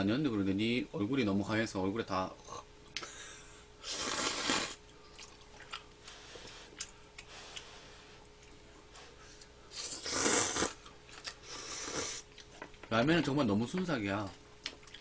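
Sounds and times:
noodles being slurped: 0:03.8 - 0:05.8, 0:09.8 - 0:12.2
soft chewing: 0:04.8 - 0:10.0, 0:10.6 - 0:13.0, 0:14.6 - 0:15.0.

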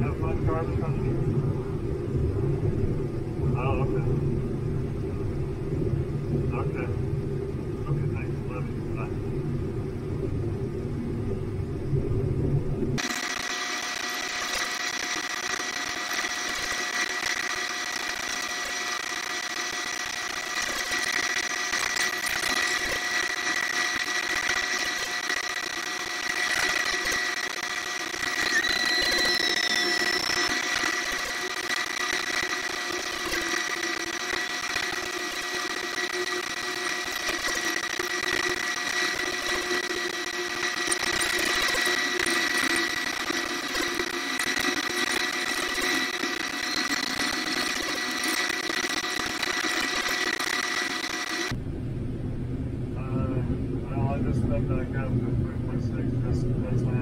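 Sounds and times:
high steady whines: 0:00.0 - 0:57.0
combine harvester running: 0:13.0 - 0:51.6.

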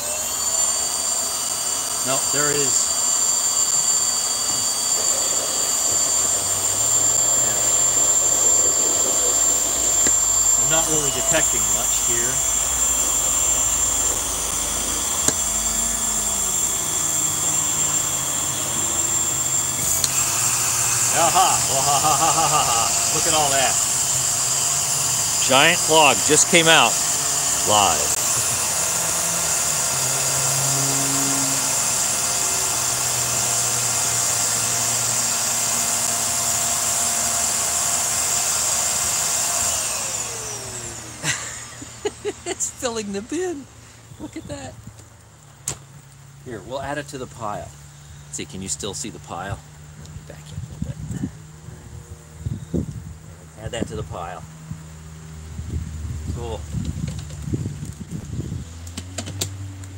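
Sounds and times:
vacuum cleaner whining: 0:00.0 - 0:45.6.

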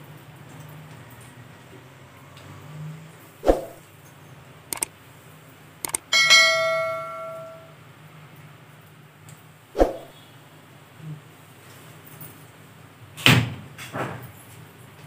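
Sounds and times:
mouse clicks: 0:04.7 - 0:04.9
bright bell chime: 0:06.1 - 0:07.8.

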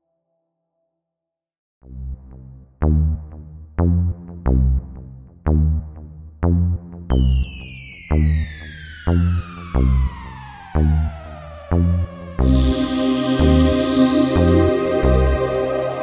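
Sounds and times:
electronic music: 0:08.7 - 0:16.0
high falling synth sweep: 0:09.2 - 0:16.0.

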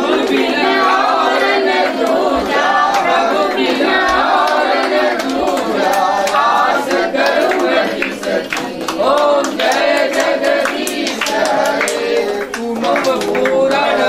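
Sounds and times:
handclaps: 0:00.0 - 0:14.0
women singing folk song: 0:00.0 - 0:14.0.

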